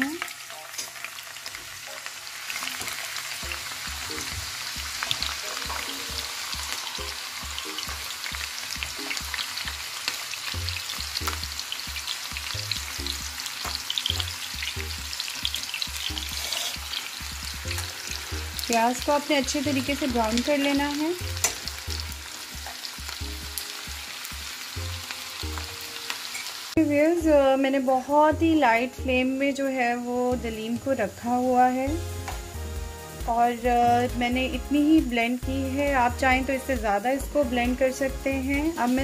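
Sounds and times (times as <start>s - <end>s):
onions sizzling in hot fat: 0.0s - 39.0s.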